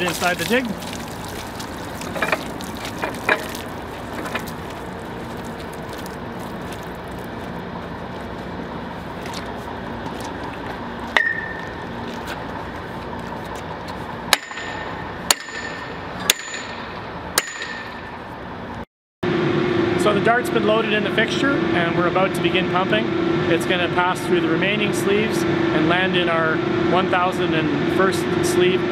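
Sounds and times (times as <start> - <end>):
metal pipe clanks: 2.1 - 4.5, 11.2 - 11.7
sledgehammer striking metal: 11.2 - 11.7, 14.3 - 18.1.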